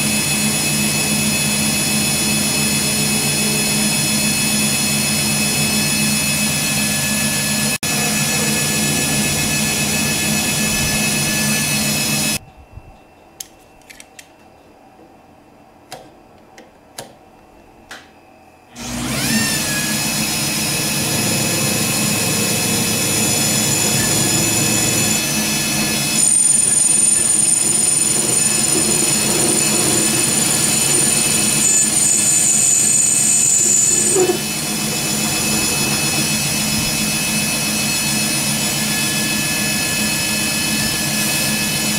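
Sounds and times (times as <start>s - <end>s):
metal lathe whining: 0.0s - 12.4s, 18.8s - 41.9s
cutting tool turning metal: 18.8s - 41.9s.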